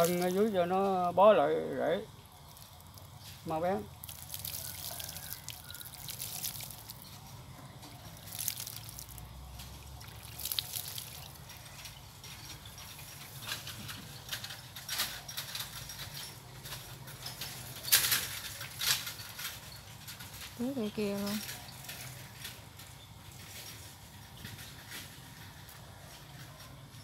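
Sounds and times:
water pouring onto soil: 0.0s - 1.0s, 1.9s - 14.4s
soil crackling as water soaks: 0.0s - 26.3s
soil and plant handled: 0.0s - 27.0s.

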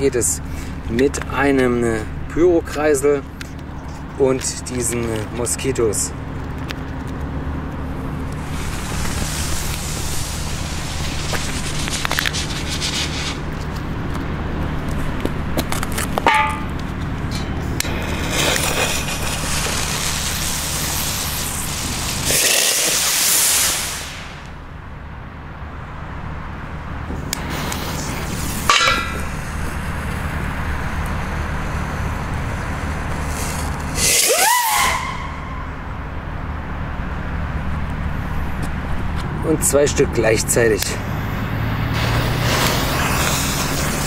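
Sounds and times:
mini rocket hissing rush: 8.2s - 13.8s, 17.7s - 24.6s, 27.4s - 30.4s, 32.1s - 35.9s, 40.7s - 44.0s
firework spinner fizzing: 8.2s - 13.9s, 17.7s - 24.6s, 27.3s - 35.8s, 41.9s - 44.0s
whistling pops: 34.0s - 35.8s.

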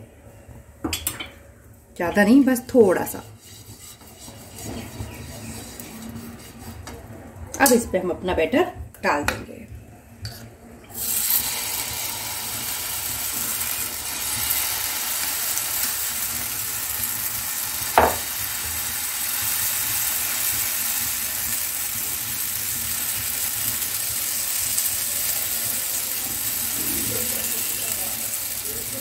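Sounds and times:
batter sizzling in hot fat: 3.3s - 6.8s, 10.9s - 29.0s.

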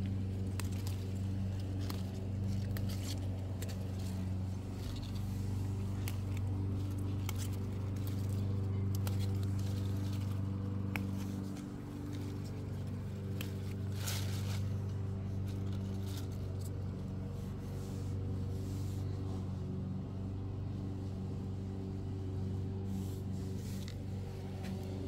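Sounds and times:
motor humming: 0.0s - 25.0s.

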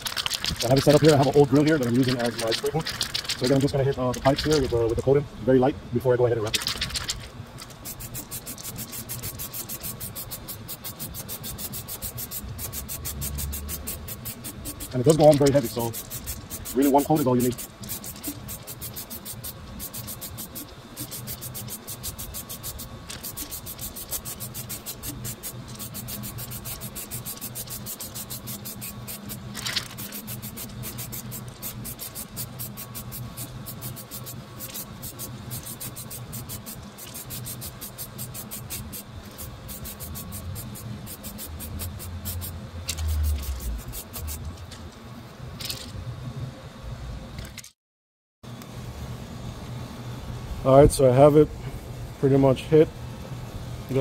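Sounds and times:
faint steady hum: 0.0s - 47.7s
aerosol can spraying bursts: 7.6s - 44.5s.

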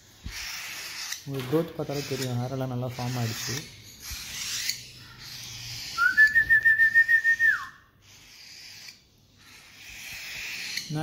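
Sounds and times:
person whistling a note: 6.0s - 7.7s.

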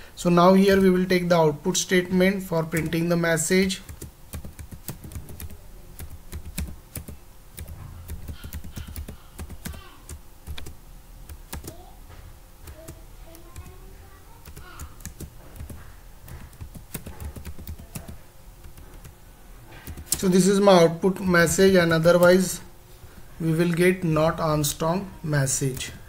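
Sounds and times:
keyboard typing clicks: 3.9s - 11.8s, 14.4s - 19.1s.

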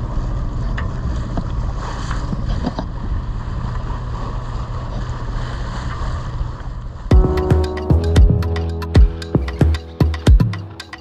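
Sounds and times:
water washing past hull: 0.0s - 8.0s
boat engine drone: 2.8s - 11.0s.

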